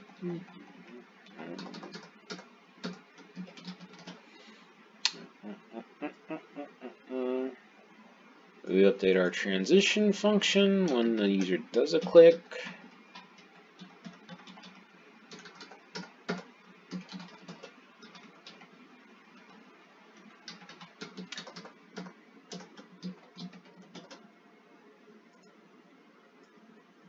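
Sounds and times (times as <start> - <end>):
keyboard typing: 1.3 - 4.2, 13.1 - 18.7, 20.2 - 24.2.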